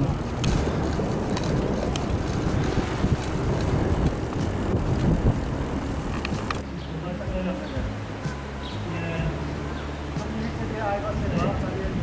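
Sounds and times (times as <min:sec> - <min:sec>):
wind rushing on microphone: 0:00.0 - 0:06.6, 0:09.8 - 0:12.0
bicycle riding noise: 0:00.0 - 0:12.0.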